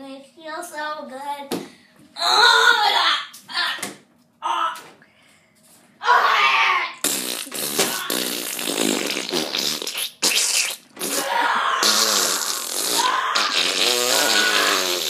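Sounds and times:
rasping fart noises: 7.0 - 15.0.

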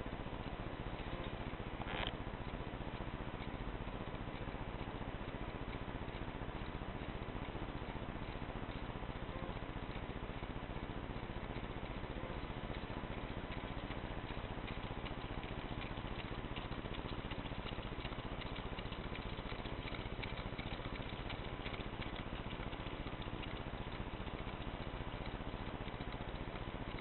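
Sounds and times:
engines ticking rapidly: 0.0 - 27.0.

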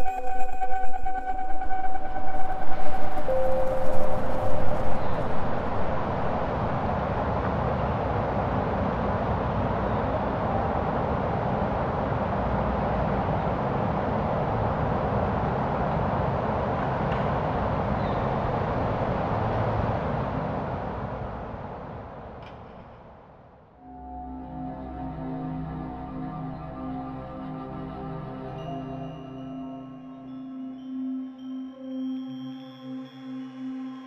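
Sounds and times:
steady rushing rumble: 0.0 - 23.4.

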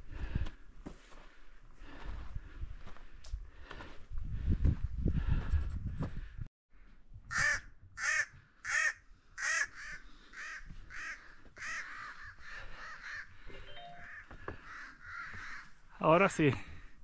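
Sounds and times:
crow cawing: 7.3 - 15.8.

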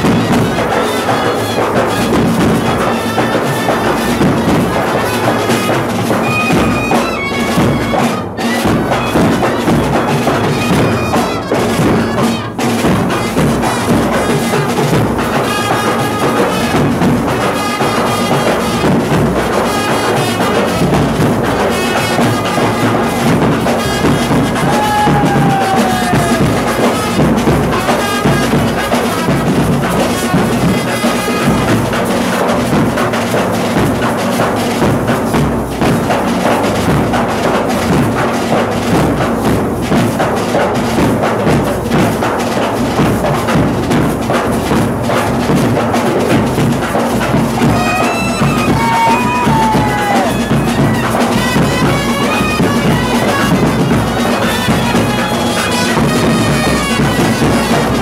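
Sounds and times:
clarinet melody: 0.0 - 13.3, 50.0 - 58.0
snare drums beating: 0.0 - 58.0
bass drum beating: 20.4 - 34.1, 40.8 - 58.0.

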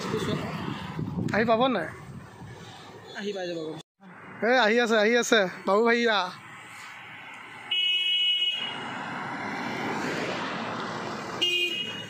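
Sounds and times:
vehicle passing on road: 0.0 - 3.2, 4.1 - 12.0
vehicle horn blasts: 7.7 - 8.8, 11.4 - 12.0.

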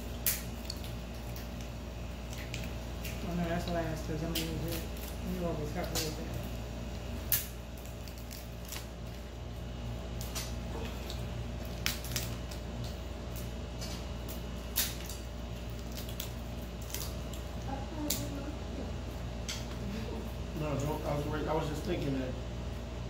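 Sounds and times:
wet squishing: 0.0 - 18.2
crab legs cracking: 0.0 - 18.3.

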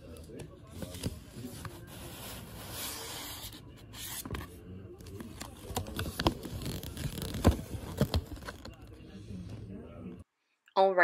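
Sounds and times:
paper rustling and crinkling: 0.3 - 9.0.

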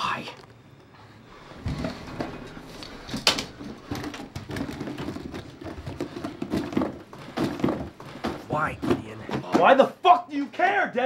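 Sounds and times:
bags rustling: 1.6 - 9.7.

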